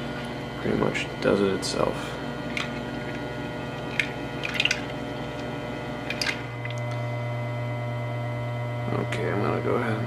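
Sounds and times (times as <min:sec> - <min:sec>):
electric mixer humming: 0:00.0 - 0:10.0
water splashing and dripping: 0:03.8 - 0:05.4.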